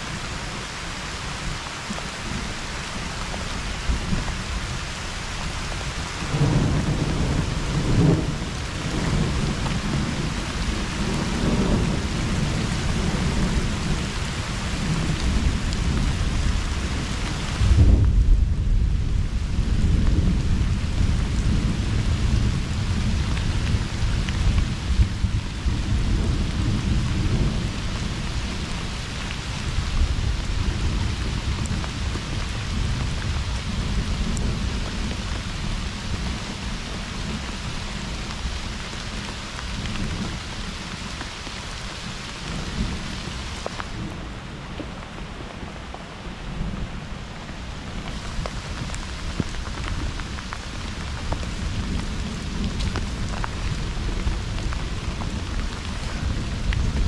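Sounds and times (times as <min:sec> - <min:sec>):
heavy rain falling: 0:00.0 - 0:57.0
thunder rumbling: 0:06.2 - 0:41.1, 0:47.9 - 0:57.0.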